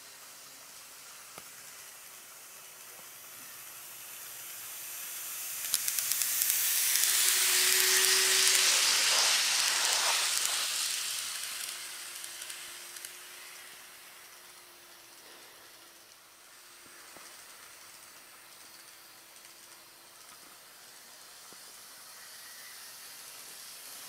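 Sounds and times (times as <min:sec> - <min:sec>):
model train wheels and motor hiss: 0:00.0 - 0:24.0
light track clicks: 0:05.6 - 0:14.6.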